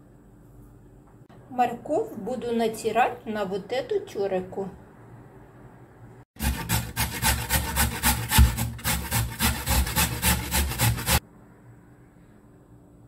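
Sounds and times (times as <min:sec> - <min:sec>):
carrot grated on metal grater: 0:06.4 - 0:11.2.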